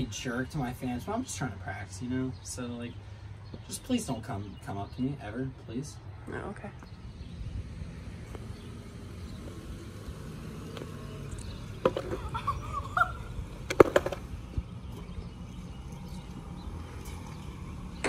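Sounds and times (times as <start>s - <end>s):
skateboard clacking on concrete: 11.7s - 12.4s, 13.6s - 14.4s.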